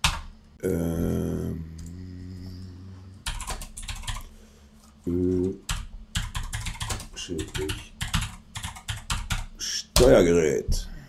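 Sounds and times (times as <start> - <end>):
computer keyboard typing: 0.0 - 0.3, 3.2 - 4.3, 5.2 - 10.2.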